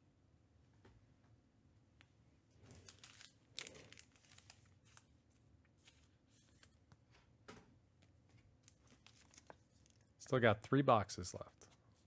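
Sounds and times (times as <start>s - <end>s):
pack wrappers rustling: 2.6s - 5.1s, 8.6s - 10.1s
trading cards rustling and clicking: 2.6s - 5.1s, 8.3s - 10.1s.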